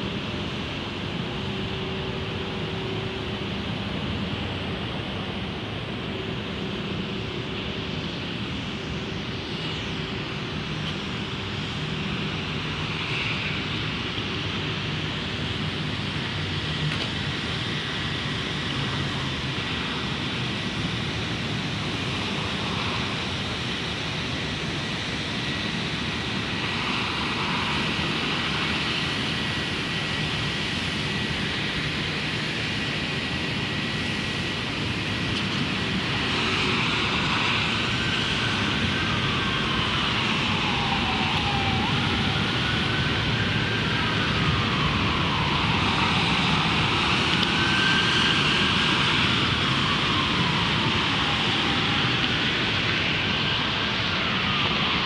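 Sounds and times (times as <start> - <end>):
city traffic hum: 0.0 - 55.0
distant siren wailing: 36.6 - 52.9.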